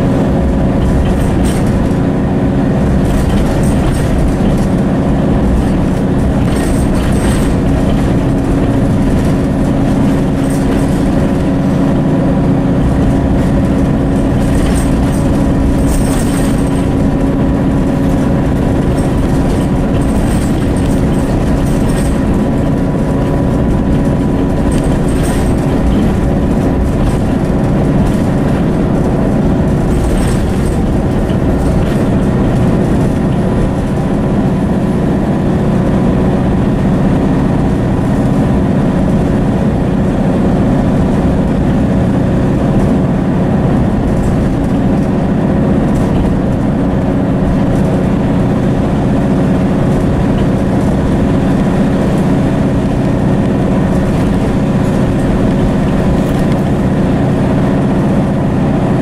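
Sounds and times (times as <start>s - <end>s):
faint rattles: 0.0s - 35.9s
bus engine humming: 0.0s - 59.0s
road noise: 0.0s - 59.0s.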